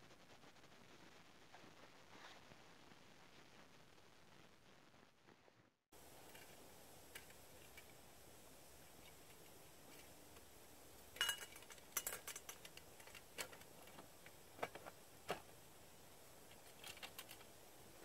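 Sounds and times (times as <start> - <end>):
light metal clinks: 11.2 - 13.2.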